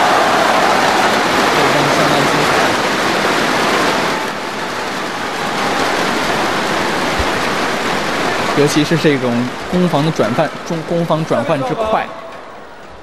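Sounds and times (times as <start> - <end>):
crowd clapping: 0.0 - 8.6
crowd cheering: 0.0 - 13.0.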